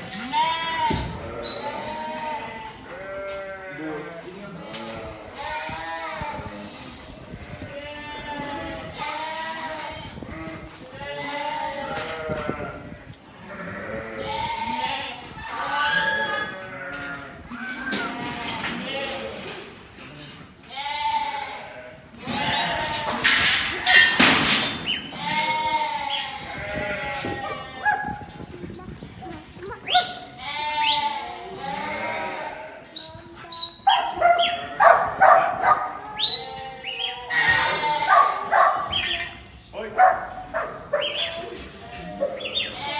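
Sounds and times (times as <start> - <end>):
sheep bleating: 0.1 - 19.5, 20.6 - 24.2, 25.1 - 28.1, 30.0 - 32.9, 36.0 - 39.2, 40.6 - 42.9
dog barking: 27.5 - 28.2, 33.9 - 36.0, 38.1 - 38.9, 40.0 - 41.2.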